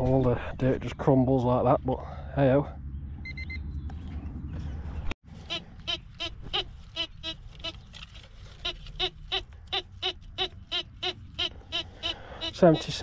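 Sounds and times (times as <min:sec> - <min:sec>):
metal detector beeping: 0:03.2 - 0:03.6, 0:08.6 - 0:13.0.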